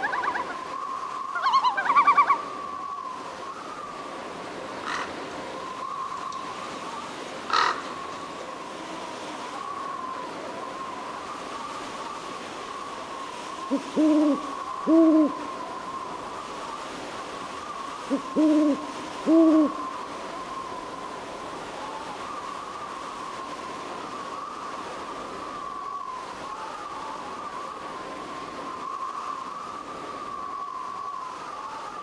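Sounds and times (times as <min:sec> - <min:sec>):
owl hooting: 0:05.7 - 0:08.2, 0:13.6 - 0:20.8.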